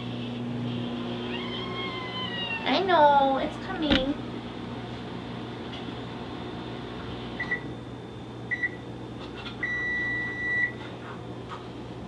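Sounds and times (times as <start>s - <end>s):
microwave oven beeping: 3.8s - 10.8s.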